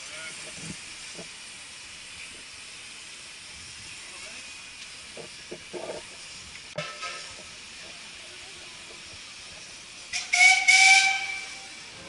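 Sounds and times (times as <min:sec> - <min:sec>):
steam hissing: 0:00.0 - 0:12.0
steam whistle blowing: 0:10.1 - 0:12.0.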